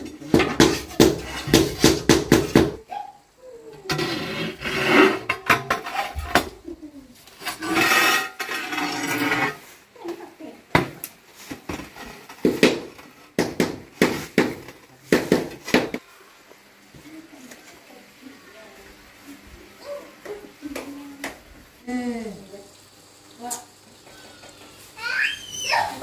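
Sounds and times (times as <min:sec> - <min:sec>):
tiles clinking and knocking: 0:00.0 - 0:02.8, 0:04.8 - 0:06.6
scraping: 0:03.8 - 0:06.5, 0:07.3 - 0:09.8.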